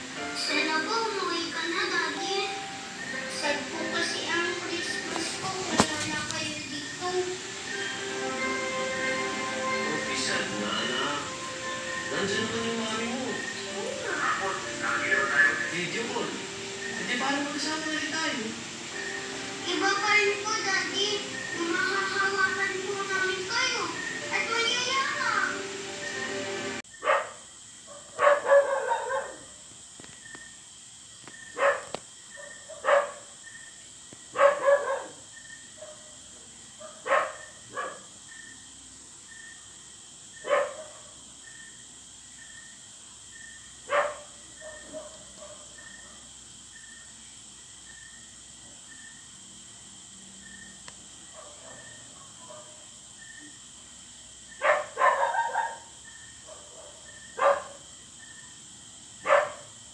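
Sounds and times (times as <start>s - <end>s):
dog barking: 27.0s - 29.6s, 31.5s - 33.4s, 34.3s - 35.2s, 35.8s - 36.2s, 36.8s - 38.1s, 40.4s - 41.2s, 43.8s - 46.3s, 51.3s - 52.9s, 54.6s - 57.8s, 59.2s - 59.8s.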